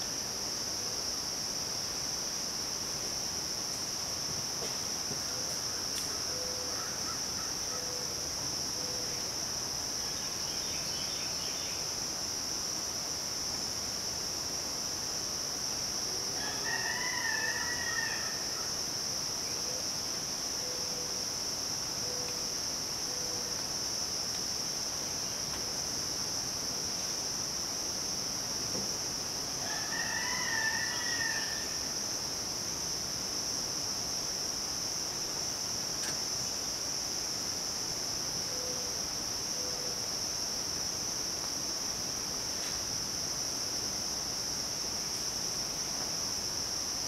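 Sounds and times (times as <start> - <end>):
insects droning: 0.0 - 47.0
rooster crowing: 16.4 - 18.6, 29.6 - 31.8.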